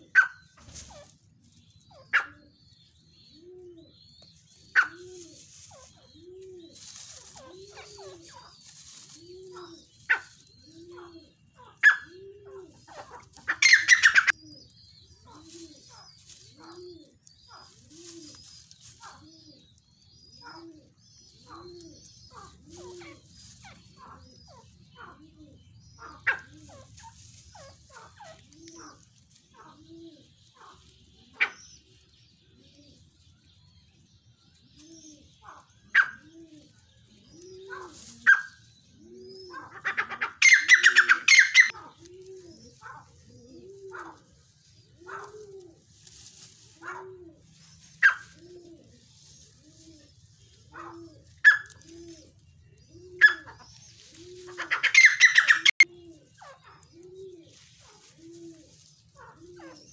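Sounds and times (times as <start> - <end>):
pigeons cooing: 0.0 - 33.2, 34.5 - 59.9
birds chirping: 0.0 - 59.9
rapid chattering bird calls: 4.3 - 32.0, 37.2 - 45.6, 46.6 - 58.2.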